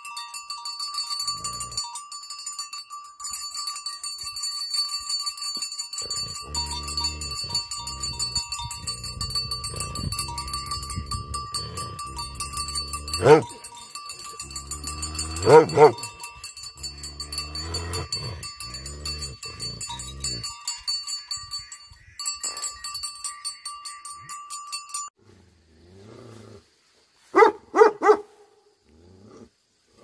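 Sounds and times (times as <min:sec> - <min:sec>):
metal collar bell clanking: 0:00.0 - 0:25.2
dog barking deeply: 0:13.1 - 0:13.6, 0:15.4 - 0:16.1, 0:27.4 - 0:28.5.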